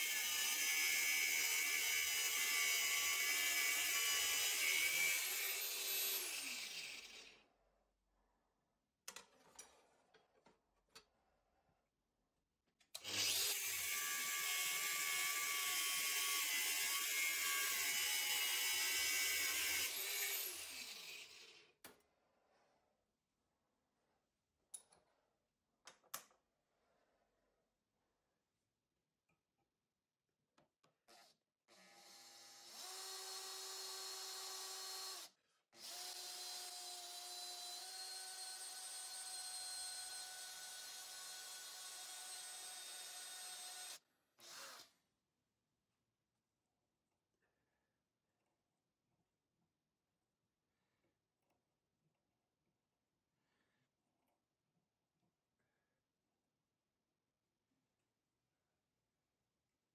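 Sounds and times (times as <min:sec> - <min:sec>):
angle grinder cutting metal: 0:00.0 - 0:07.3, 0:13.0 - 0:21.5
power drill whining: 0:13.0 - 0:21.5, 0:31.2 - 0:44.9.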